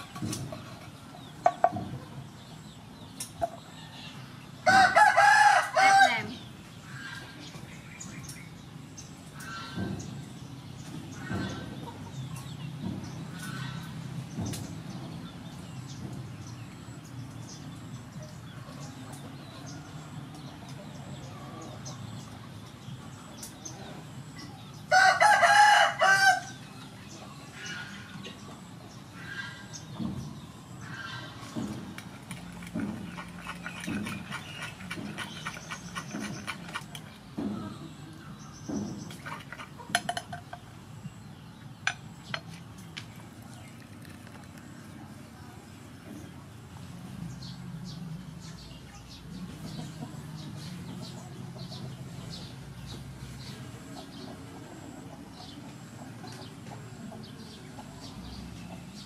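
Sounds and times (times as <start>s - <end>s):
rooster crowing: 4.6s - 6.4s, 24.9s - 26.6s.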